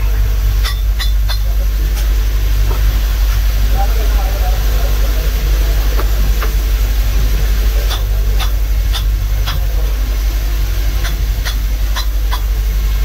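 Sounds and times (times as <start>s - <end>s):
low machine drone: 0.0s - 13.0s
hammer striking metal: 0.6s - 1.6s, 7.9s - 9.6s.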